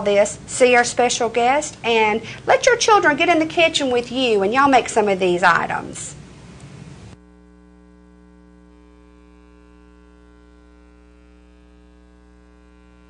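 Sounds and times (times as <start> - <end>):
background hiss: 0.0 - 7.2
electrical mains hum: 0.0 - 13.0.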